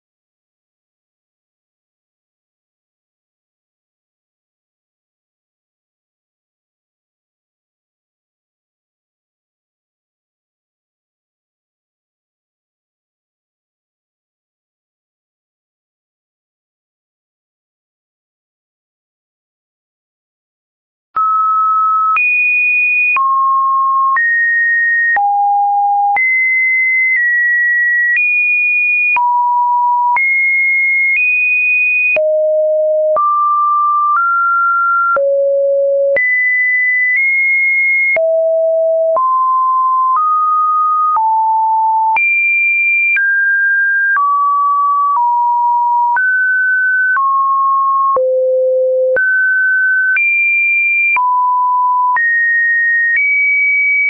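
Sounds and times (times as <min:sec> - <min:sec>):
sine-wave beeps changing pitch: 0:21.2 - 0:22.2, 0:23.0 - 0:28.2, 0:29.1 - 0:31.2, 0:32.1 - 0:42.2, 0:43.1 - 0:50.2, 0:51.0 - 0:53.6.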